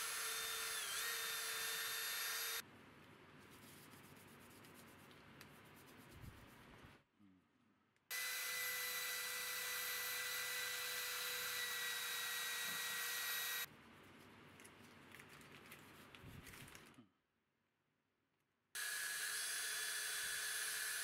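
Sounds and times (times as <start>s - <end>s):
rotary tool whirring on metal: 0.0s - 2.6s, 8.1s - 13.7s, 18.8s - 21.0s.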